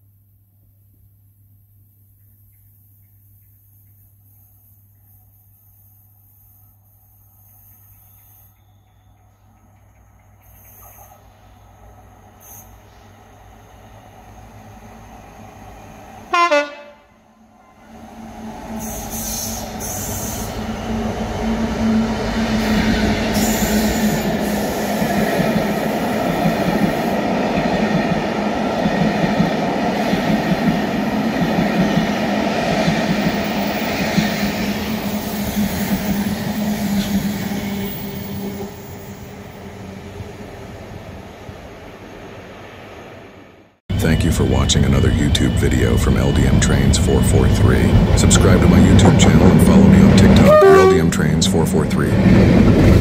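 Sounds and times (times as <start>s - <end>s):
train wheels rumbling and squealing: 7.4s - 16.3s, 17.6s - 41.2s, 43.9s - 53.0s
locomotive engine drone: 9.3s - 28.9s, 43.9s - 53.0s.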